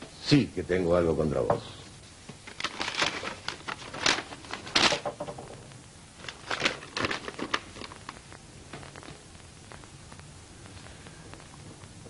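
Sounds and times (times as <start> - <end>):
paper rustling: 2.4 - 5.2, 6.2 - 8.2.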